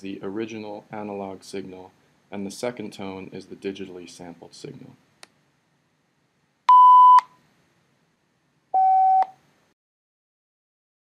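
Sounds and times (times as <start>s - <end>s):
short electronic beeps: 6.7s - 7.3s, 8.8s - 9.3s.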